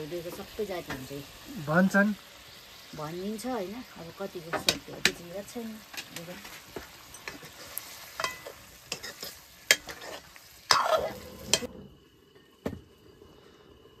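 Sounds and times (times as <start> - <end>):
food sizzling in a pan: 0.0 - 14.0
utensil scraping against pan: 5.9 - 11.7.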